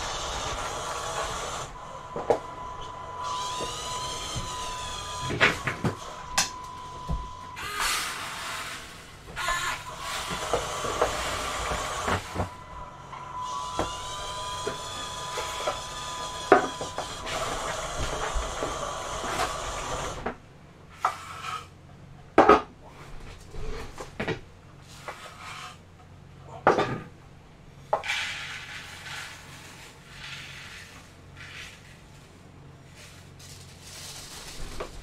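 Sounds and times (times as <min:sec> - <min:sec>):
electric motors whining: 0:00.0 - 0:20.4
rice pouring hiss: 0:07.7 - 0:09.2.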